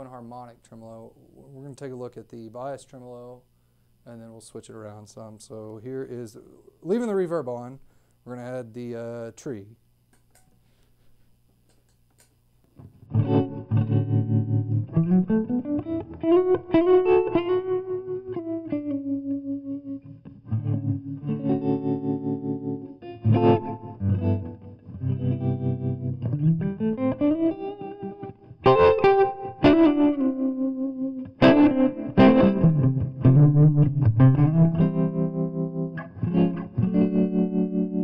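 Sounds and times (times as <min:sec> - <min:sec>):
electric guitar with tremolo: 0:12.8 - 0:38.0.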